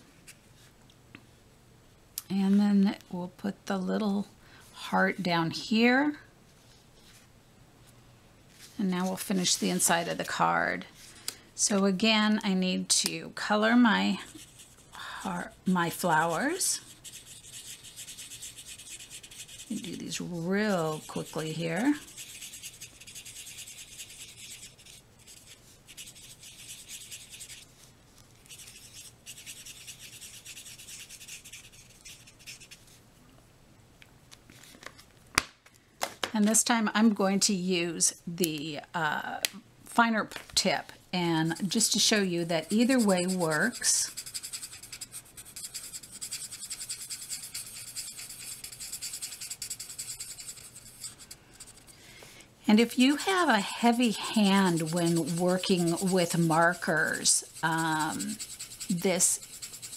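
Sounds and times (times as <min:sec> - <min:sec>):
marker scribbling on card: 0:14.2 - 0:33.0, 0:41.3 - 0:51.9, 0:52.8 - 0:59.9.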